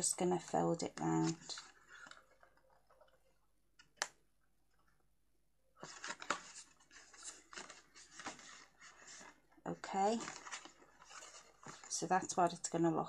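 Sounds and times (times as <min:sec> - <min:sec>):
card rustling and crinkling: 0:00.9 - 0:03.9, 0:05.8 - 0:12.7.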